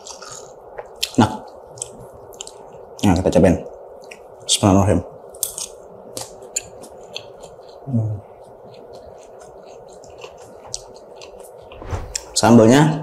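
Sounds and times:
person chewing food: 0.0s - 2.8s, 5.4s - 12.4s.

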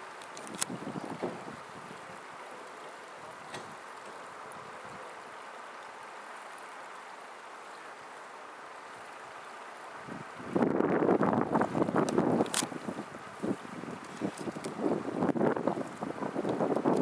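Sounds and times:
wind buffeting microphone: 0.0s - 5.2s, 9.9s - 17.0s
steady outdoor hiss: 0.0s - 17.0s.

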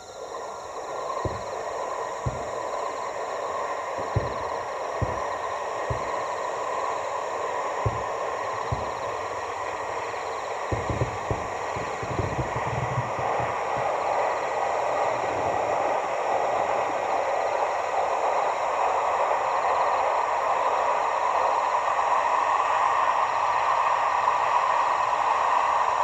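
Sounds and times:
train wheels rolling on rails: 0.0s - 22.7s.

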